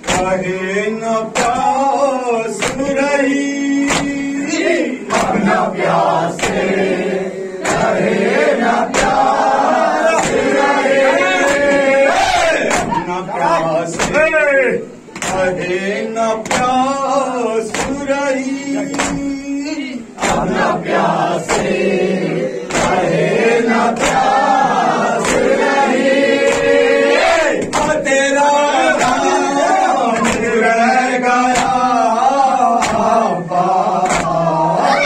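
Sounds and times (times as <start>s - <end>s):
hands slapping chests: 0.0s - 0.4s, 1.4s - 1.7s, 2.6s - 3.0s, 3.8s - 4.2s, 6.4s - 6.8s, 8.8s - 9.3s, 10.1s - 10.6s, 12.6s - 13.0s, 15.1s - 15.5s, 16.4s - 16.8s, 17.7s - 18.0s, 18.9s - 19.3s, 20.2s - 20.6s, 22.7s - 23.1s, 24.0s - 24.4s, 25.2s - 25.6s, 26.4s - 28.0s, 30.2s - 30.6s, 31.5s - 31.8s, 32.8s - 33.2s, 34.0s - 34.4s
person reciting into a microphone: 0.0s - 8.0s, 8.8s - 25.7s, 26.3s - 35.0s
men chanting in unison: 0.0s - 35.0s.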